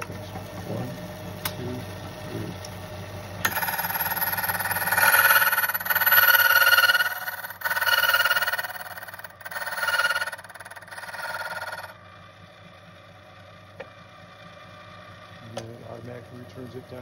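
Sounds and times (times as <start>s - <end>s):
electric motor hum: 0.0s - 17.0s
key cutter grinding: 3.4s - 11.9s.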